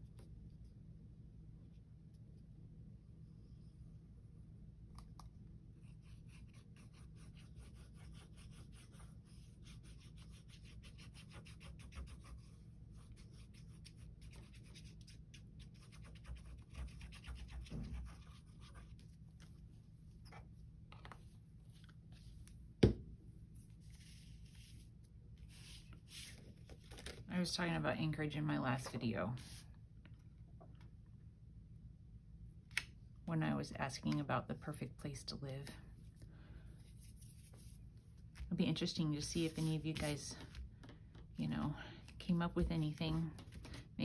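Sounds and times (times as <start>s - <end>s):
scratching strokes on paper: 5.8s - 19.6s, 23.6s - 26.4s, 39.4s - 40.2s.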